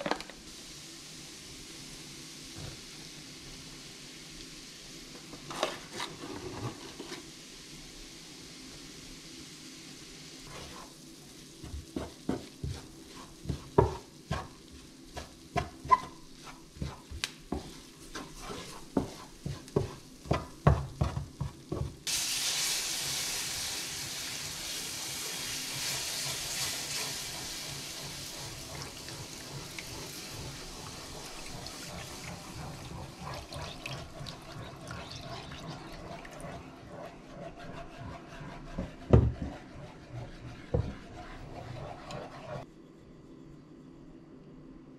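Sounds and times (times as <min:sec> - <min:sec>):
milk sizzling in hot pan: 0:00.0 - 0:42.6
spoon scraping frying pan: 0:15.2 - 0:21.2.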